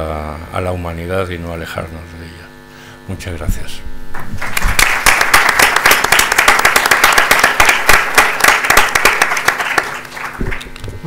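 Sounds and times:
audience applause: 0:04.4 - 0:10.8.

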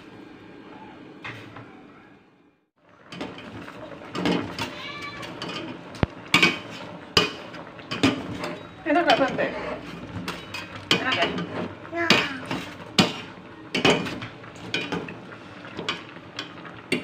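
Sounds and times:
pot boiling hiss: 0:02.8 - 0:17.0
wire skimmer scraping metal pot: 0:03.1 - 0:16.0.

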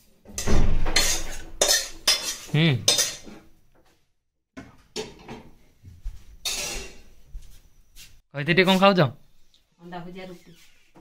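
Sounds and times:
plates and utensils clattering: 0:00.3 - 0:03.4, 0:06.4 - 0:07.2.

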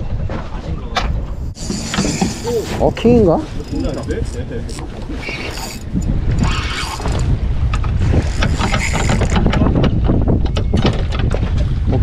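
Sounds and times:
wind rumbling on microphone: 0:00.0 - 0:12.0
fishing reel clicking and whirring: 0:01.6 - 0:02.6, 0:03.6 - 0:07.3, 0:08.2 - 0:09.4.

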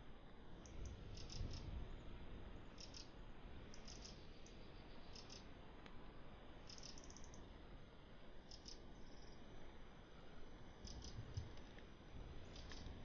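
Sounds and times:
soft hiss: 0:00.0 - 0:13.0.

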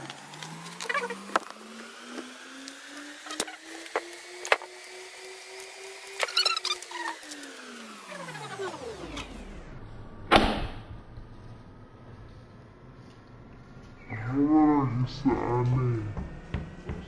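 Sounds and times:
sandpaper crinkling: 0:05.5 - 0:08.5
faint hum: 0:06.3 - 0:17.0.

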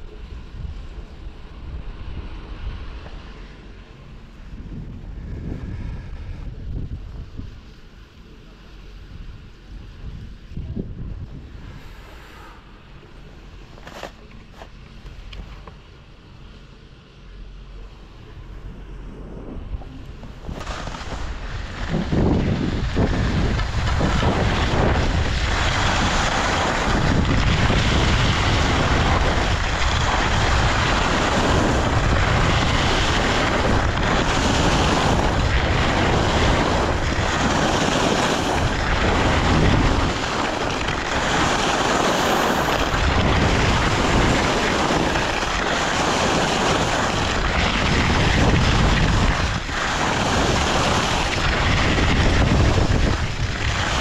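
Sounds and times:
wind buffeting microphone: 0:00.0 - 0:16.1, 0:17.2 - 0:54.0
skis scraping over snow: 0:11.3 - 0:15.9, 0:17.8 - 0:54.0.

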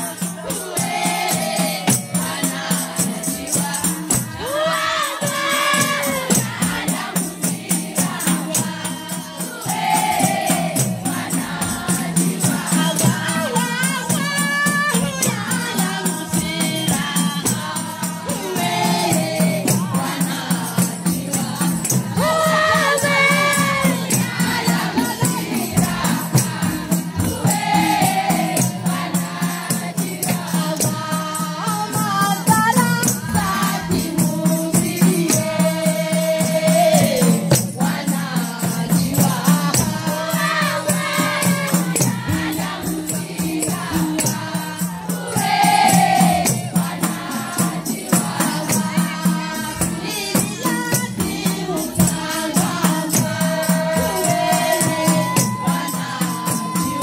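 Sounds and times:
rattling percussion beat: 0:00.0 - 0:57.0
women's choir chanting: 0:00.0 - 0:57.0.

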